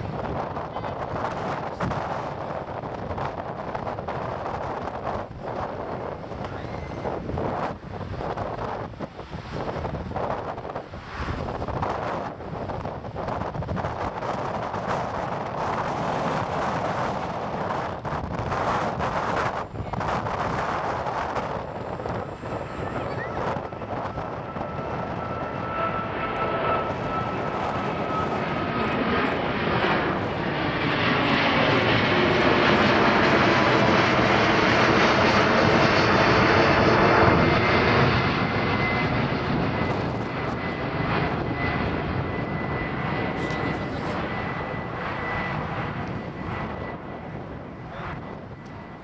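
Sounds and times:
jet engines passing overhead: 0:00.0 - 0:49.0
thin engine whine: 0:13.3 - 0:49.0.

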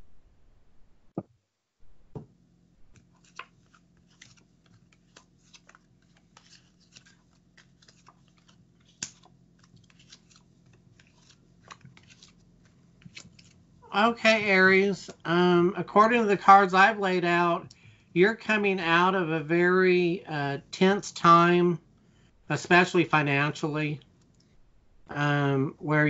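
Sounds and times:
cards clicking and tapping: 0:02.9 - 0:13.6.

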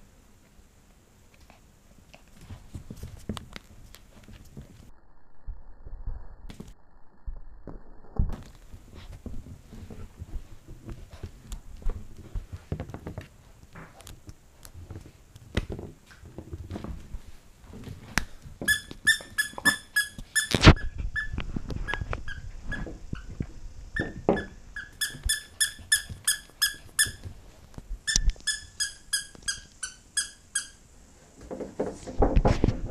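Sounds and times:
squeaky dog toy squeaking: 0:18.7 - 0:23.3, 0:24.0 - 0:27.2, 0:28.1 - 0:30.8.

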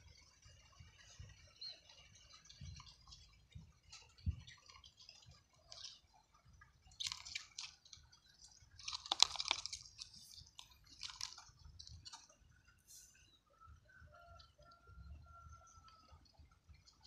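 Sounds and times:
crackling rustling handling noises: 0:03.8 - 0:12.4.

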